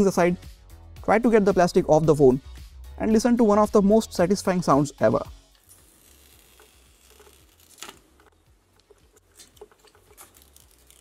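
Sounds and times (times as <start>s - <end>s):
plastic film peeling crackles: 5.5s - 11.0s.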